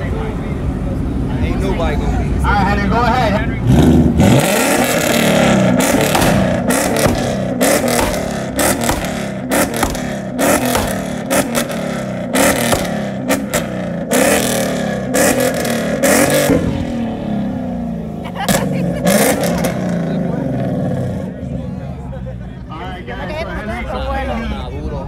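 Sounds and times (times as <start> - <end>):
car engine revving: 3.4 - 22.1
exhaust pops and crackles: 4.4 - 17.0.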